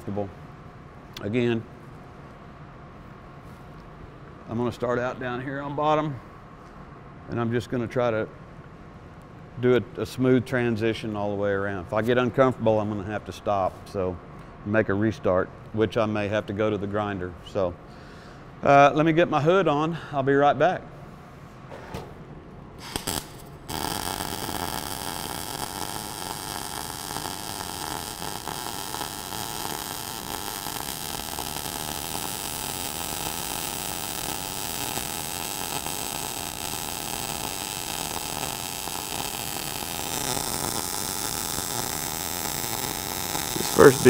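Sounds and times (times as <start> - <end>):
welding arc sizzling: 22.8 - 44.0.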